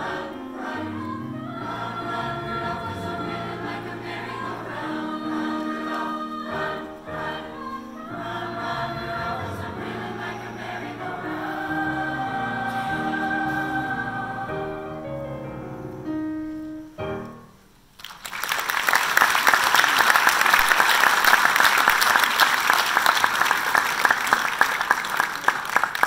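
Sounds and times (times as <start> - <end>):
choir singing with piano: 0.0 - 17.5
audience applause: 18.0 - 26.0.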